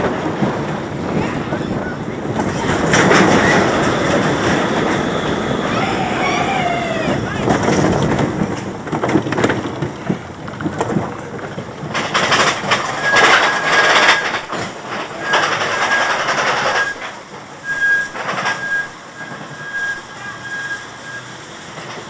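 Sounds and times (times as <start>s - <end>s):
roller coaster cars rattling: 0.0s - 22.0s
high squeal: 1.5s - 8.2s, 12.8s - 14.5s, 15.1s - 17.0s, 17.6s - 21.5s.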